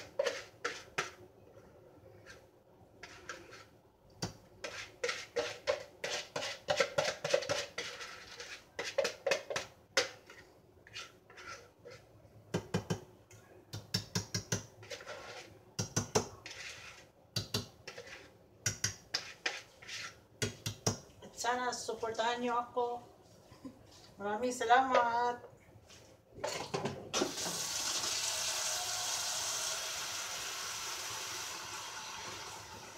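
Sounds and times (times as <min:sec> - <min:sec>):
spatula scraping ceramic bowl: 0:00.0 - 0:01.2, 0:03.0 - 0:03.8, 0:04.6 - 0:12.2, 0:14.5 - 0:17.2, 0:17.8 - 0:20.6.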